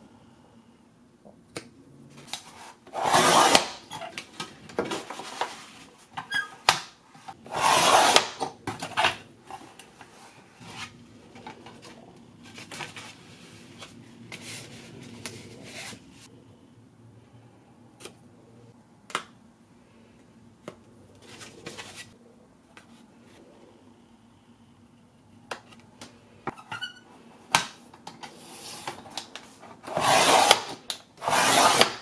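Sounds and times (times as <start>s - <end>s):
paper trimmer cutting paper: 2.9s - 3.8s, 7.5s - 8.4s, 29.9s - 32.0s.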